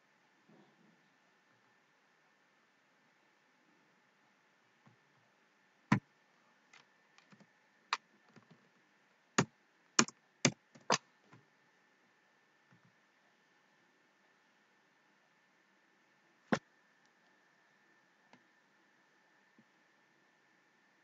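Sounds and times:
keyboard keystrokes: 0:10.0 - 0:11.0
mouse clicks: 0:10.0 - 0:11.0.

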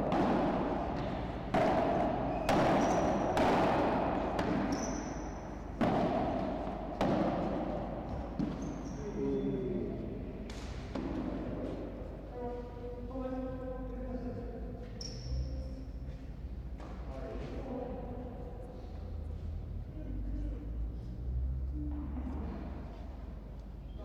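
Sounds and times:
ball rebounding off glass walls: 0:00.0 - 0:09.0
paddles striking ball: 0:00.0 - 0:09.1, 0:10.4 - 0:12.0
shoe squeaks: 0:02.2 - 0:03.4, 0:04.6 - 0:05.7, 0:08.5 - 0:09.8, 0:14.9 - 0:15.6.

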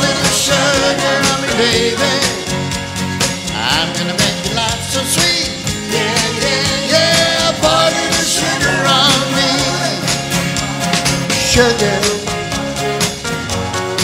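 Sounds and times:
man singing: 0:00.0 - 0:02.6, 0:03.5 - 0:10.3, 0:11.3 - 0:12.6
strummed acoustic guitar: 0:00.0 - 0:14.0.

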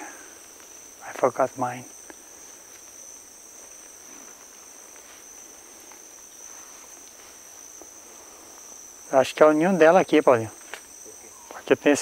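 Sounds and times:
faint rustles: 0:00.0 - 0:09.1
shrill insect chorus: 0:00.0 - 0:12.0.

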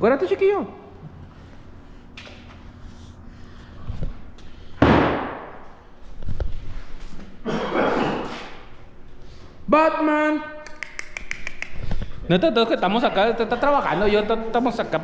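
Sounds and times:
loud sudden bang: 0:04.8 - 0:05.6.

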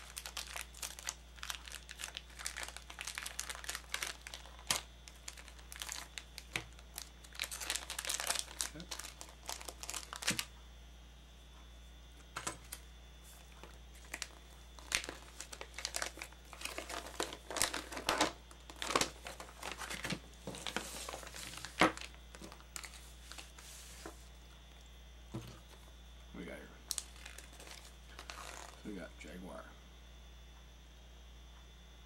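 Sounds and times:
foil packet crinkling: 0:00.0 - 0:10.5, 0:12.2 - 0:25.7, 0:26.8 - 0:29.0
paper sheet unfolding: 0:12.4 - 0:24.2.

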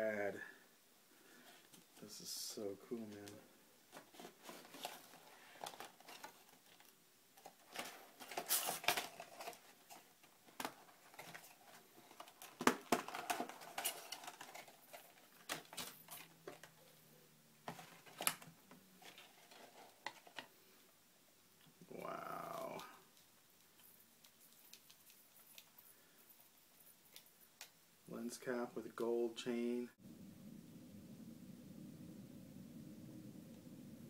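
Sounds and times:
packaging crinkling and rustling: 0:03.1 - 0:16.9, 0:17.6 - 0:20.6.

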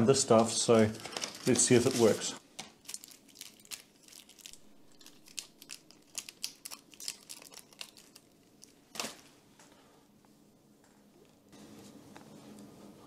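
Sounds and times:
plastic sheet crinkling: 0:00.4 - 0:09.3.

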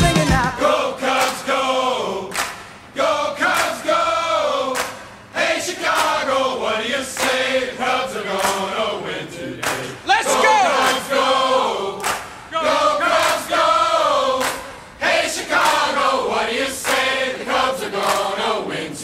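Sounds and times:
drum hits: 0:00.0 - 0:00.6
group of voices singing: 0:00.0 - 0:19.0.

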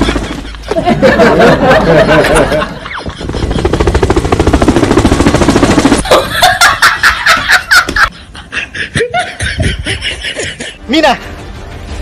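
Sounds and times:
fast rattling burst: 0:03.0 - 0:06.1
high-pitched laughter: 0:06.0 - 0:10.8.

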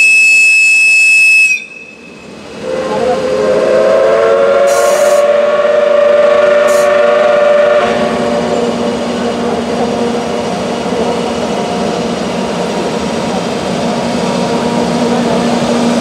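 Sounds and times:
locomotive whistle blast: 0:00.0 - 0:08.6.

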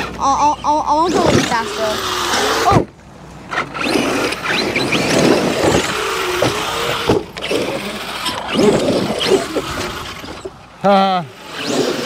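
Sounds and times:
toy truck tumbling over: 0:03.5 - 0:10.5
electric motor whine: 0:03.5 - 0:10.6, 0:11.3 - 0:12.0.

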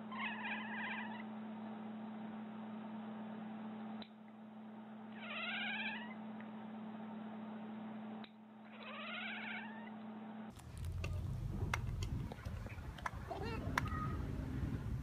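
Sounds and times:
cat meowing: 0:05.2 - 0:06.2, 0:08.7 - 0:09.9
low hum: 0:09.6 - 0:15.0.

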